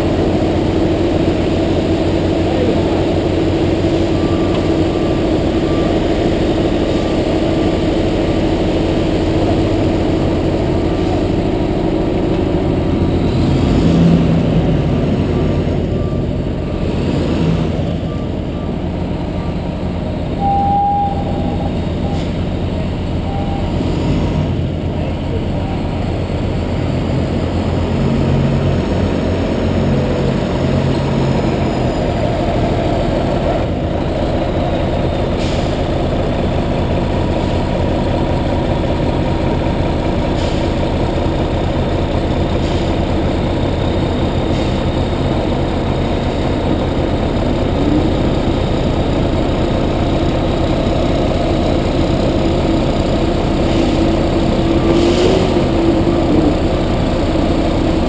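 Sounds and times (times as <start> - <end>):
diesel engine running: 0.0 - 58.0
short rising whine: 20.3 - 22.5.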